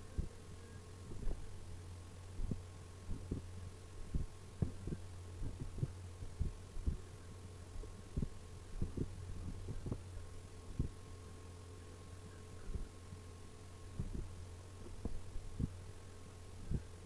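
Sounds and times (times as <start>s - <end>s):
soft low thumps: 0.0s - 0.4s, 1.1s - 1.5s, 2.4s - 7.1s, 7.8s - 10.1s, 10.7s - 11.0s, 13.9s - 15.8s, 16.6s - 16.9s
low electrical hum: 0.0s - 17.0s.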